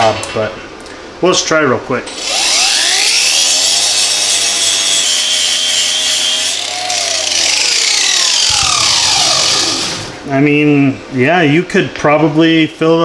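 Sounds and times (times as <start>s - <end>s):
angle grinder grinding metal: 2.1s - 10.2s.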